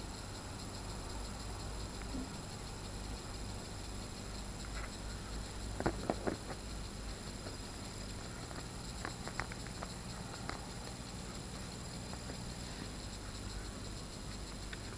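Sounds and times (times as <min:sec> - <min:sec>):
steady background hiss: 0:00.0 - 0:14.9.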